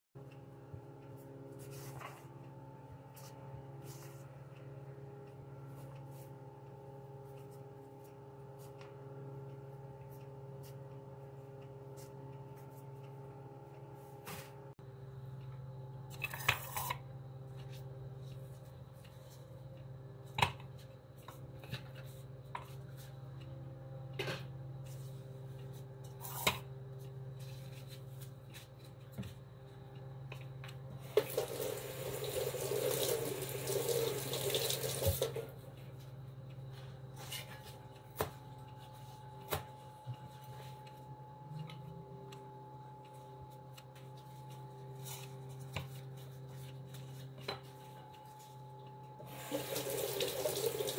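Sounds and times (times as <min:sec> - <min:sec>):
steady low hum: 0:00.2 - 0:50.9
kitchen tap running: 0:31.0 - 0:35.5, 0:49.3 - 0:50.9.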